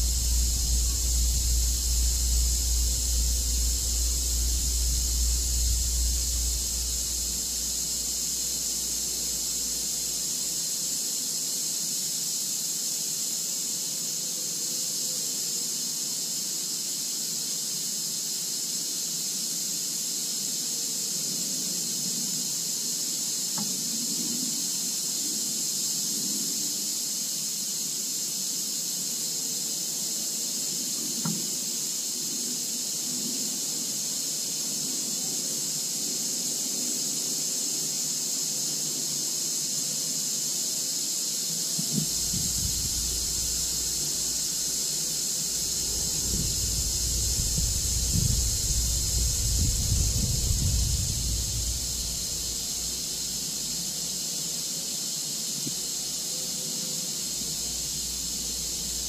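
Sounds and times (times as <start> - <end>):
low rumble: 0.0 - 9.6, 42.0 - 44.6, 45.5 - 53.0
steady high-pitched hiss: 0.0 - 59.0.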